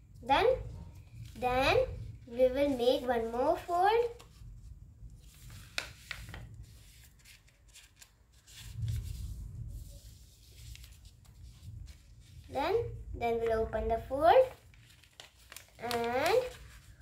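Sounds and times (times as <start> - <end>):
paper rustling and scraping: 2.7 - 12.6, 14.4 - 17.0.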